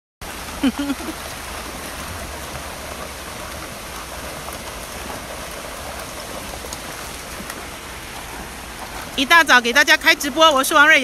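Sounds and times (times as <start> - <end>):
aerators splashing water: 0.2 - 11.0.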